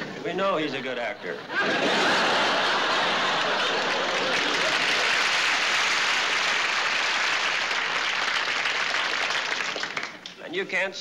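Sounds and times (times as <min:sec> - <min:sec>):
studio audience applauding: 0:02.0 - 0:10.4.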